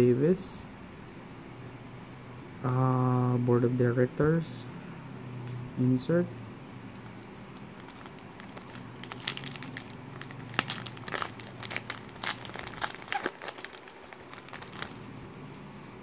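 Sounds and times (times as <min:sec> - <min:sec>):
foil wrapper tearing and crinkling: 0:07.1 - 0:15.2.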